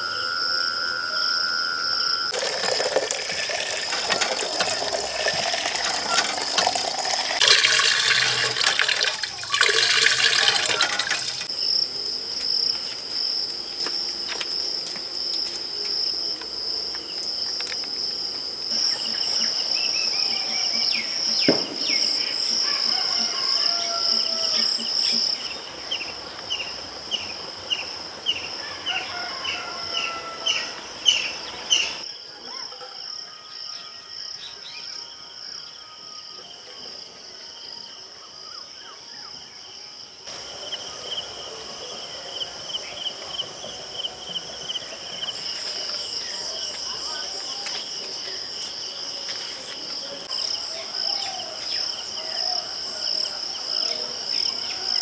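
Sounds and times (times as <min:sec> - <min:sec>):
insect drone: 0:00.0 - 0:55.0
water gushing: 0:02.3 - 0:11.5.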